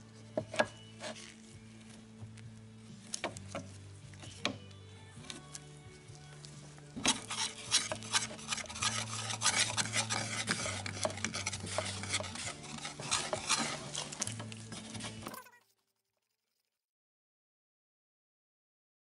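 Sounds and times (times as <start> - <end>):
background music with low notes: 0.0 - 15.3
metal tool scraping sealant: 0.3 - 1.6, 5.2 - 15.4.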